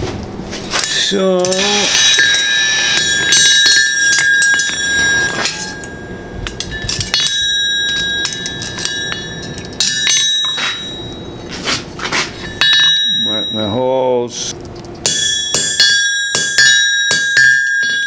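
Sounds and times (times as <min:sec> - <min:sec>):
hammer striking anvil: 0:00.8 - 0:11.4, 0:12.4 - 0:13.9, 0:15.0 - 0:18.0
anvil ringing: 0:00.8 - 0:11.5, 0:12.3 - 0:14.3, 0:15.0 - 0:18.0.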